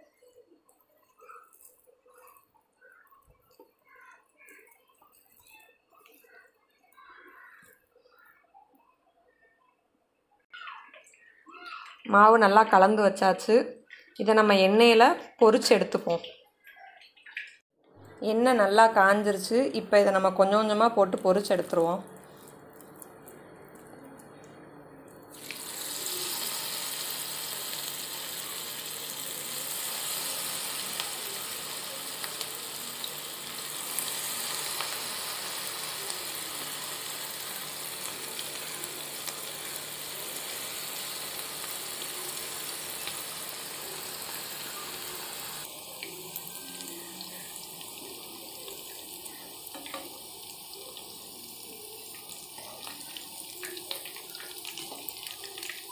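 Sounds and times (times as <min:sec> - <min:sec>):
batter sizzling in hot oil: 0:25.3 - 0:55.9.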